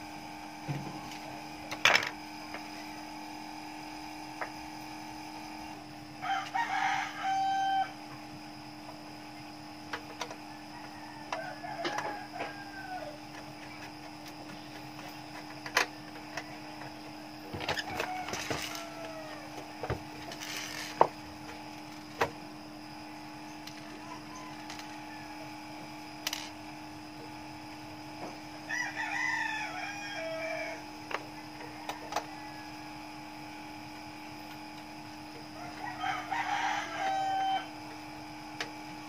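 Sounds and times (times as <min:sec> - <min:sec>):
rooster crowing: 0:06.2 - 0:08.1, 0:10.4 - 0:13.4, 0:17.5 - 0:20.9, 0:23.8 - 0:26.2, 0:28.6 - 0:33.4, 0:35.4 - 0:38.0.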